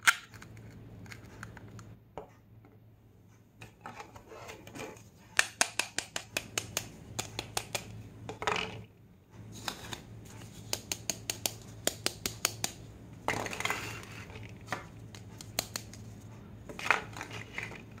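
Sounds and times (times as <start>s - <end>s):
plastic pieces scraping on table: 13.3s - 14.8s, 16.7s - 18.0s.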